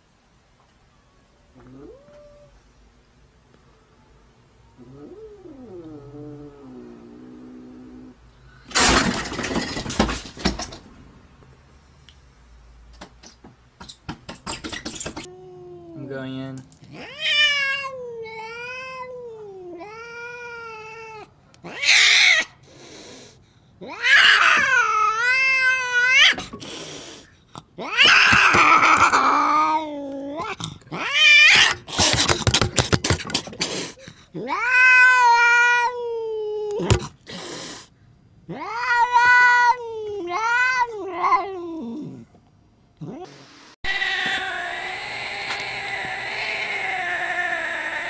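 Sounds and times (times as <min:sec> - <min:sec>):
cat yowling: 0:01.6 - 0:02.6, 0:04.8 - 0:07.1, 0:16.9 - 0:22.6, 0:23.8 - 0:26.5, 0:27.8 - 0:31.9, 0:34.4 - 0:37.0, 0:38.5 - 0:42.3, 0:43.0 - 0:48.0
cat hissing: 0:19.8 - 0:36.0, 0:36.7 - 0:42.3, 0:43.0 - 0:48.0.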